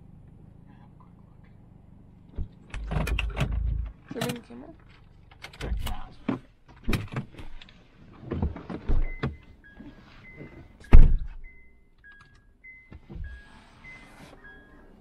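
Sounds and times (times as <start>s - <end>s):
knocks and thumps inside car: 10.4s - 11.5s.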